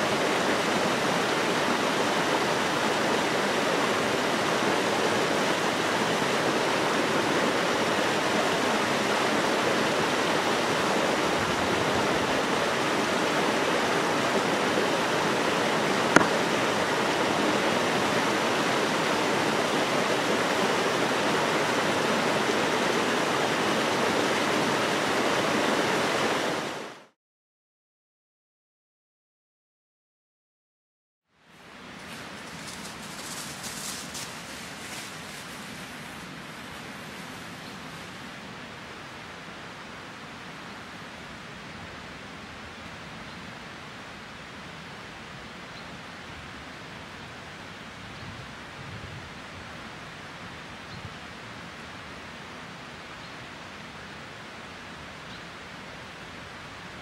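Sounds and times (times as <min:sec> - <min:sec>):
waterfall rushing into pool: 0:00.0 - 0:27.2.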